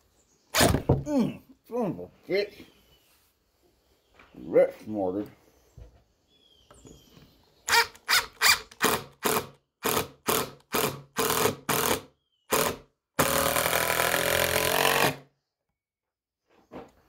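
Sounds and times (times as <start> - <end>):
cordless drill driving screw: 7.7 - 15.2.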